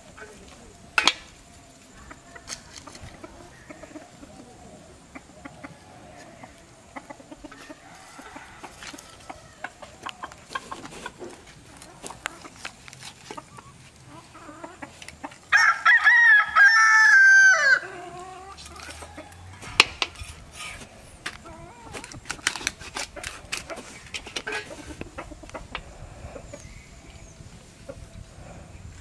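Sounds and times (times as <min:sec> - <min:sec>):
rooster crowing: 0:05.4 - 0:10.1, 0:15.5 - 0:20.1
sharp clicks and knocks: 0:19.7 - 0:21.4.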